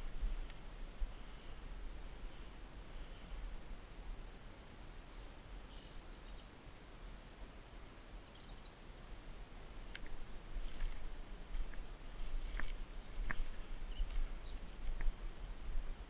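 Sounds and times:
wind rumble on microphone: 9.2 - 16.0
footsteps through long grass: 9.9 - 16.0.

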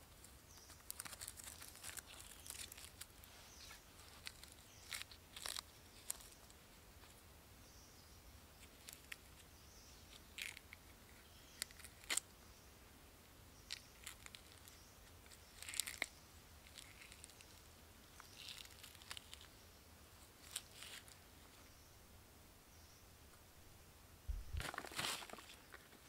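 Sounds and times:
twigs snapping: 0.5 - 6.5, 13.6 - 17.6, 18.2 - 19.5
footsteps crunching dry leaves: 24.3 - 25.6.

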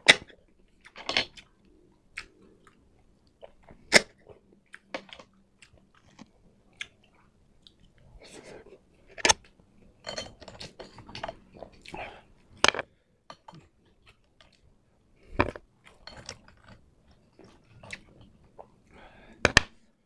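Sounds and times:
chewing and mouth sounds: 0.7 - 8.8, 15.5 - 18.9.

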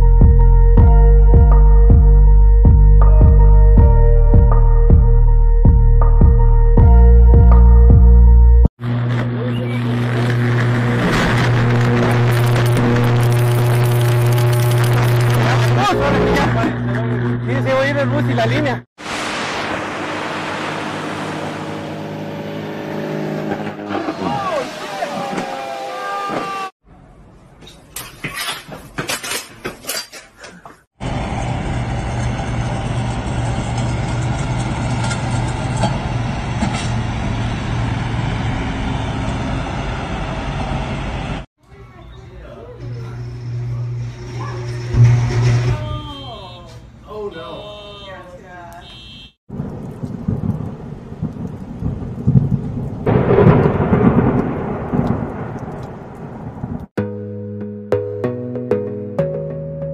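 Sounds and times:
truck running with low hum: 4.3 - 18.8, 19.5 - 24.1, 31.0 - 41.4, 42.0 - 47.0
thunder rumble: 8.8 - 17.5, 49.5 - 56.9
loud thunderclap: 9.9 - 15.7, 49.5 - 56.9.

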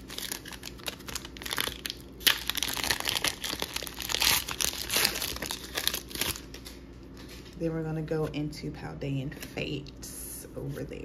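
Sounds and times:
foil wrapper crinkling: 0.0 - 7.5.

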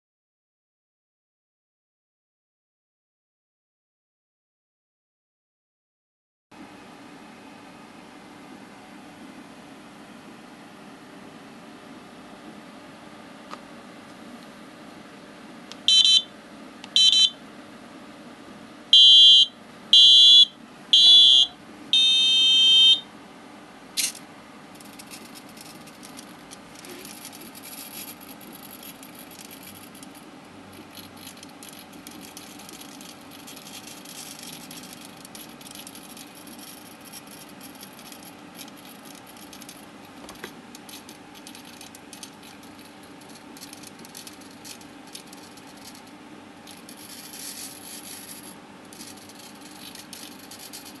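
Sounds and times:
piezo buzzer beeping: 15.9 - 16.3, 16.9 - 17.4, 18.9 - 23.1
scratching and rubbing of wooden device: 24.8 - 46.0.

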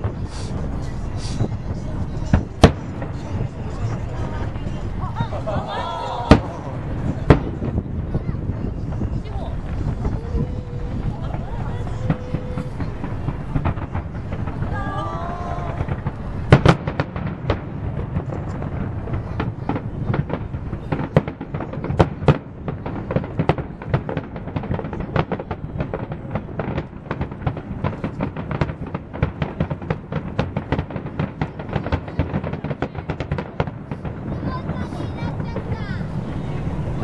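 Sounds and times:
low rumble: 0.0 - 20.9
firework shells bursting: 0.0 - 37.0.

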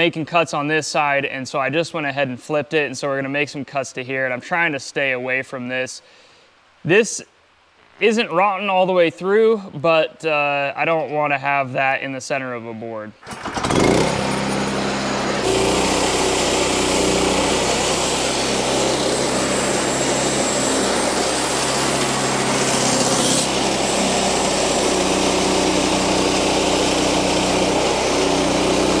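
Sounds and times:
sawmill engine running: 13.2 - 29.0
band saw cutting wood: 13.3 - 29.0.

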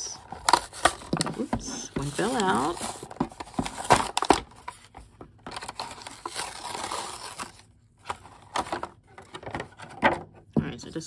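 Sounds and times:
cardboard packaging tearing: 0.2 - 4.8, 5.5 - 8.8
plastic blister tray crinkling: 0.2 - 10.1.

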